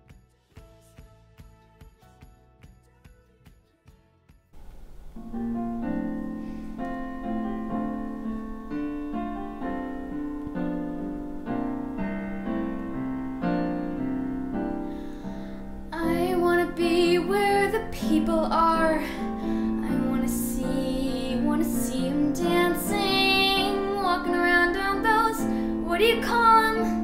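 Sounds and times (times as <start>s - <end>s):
piano playing repeated chords: 4.6s - 27.0s
girl singing: 15.9s - 27.0s.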